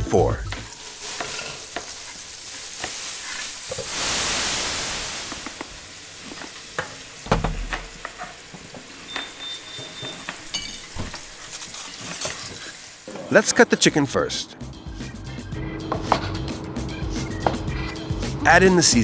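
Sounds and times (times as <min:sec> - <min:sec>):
food sizzling in hot oil: 0:00.7 - 0:13.1.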